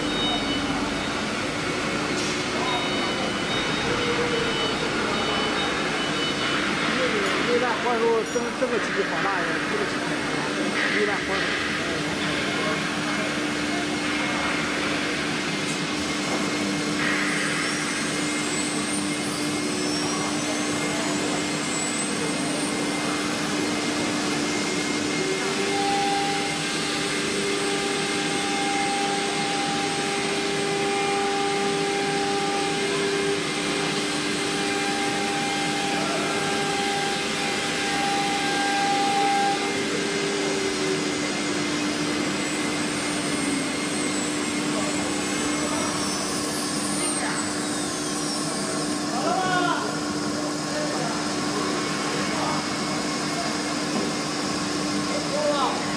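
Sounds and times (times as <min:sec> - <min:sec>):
high-pitched whine: 0:00.0 - 0:55.9
router spindle running: 0:22.9 - 0:48.7.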